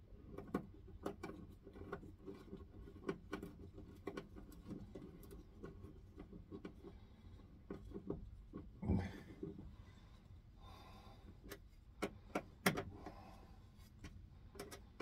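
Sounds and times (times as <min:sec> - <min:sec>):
small clicks of wire connectors: 0:11.3 - 0:13.2, 0:13.8 - 0:15.0.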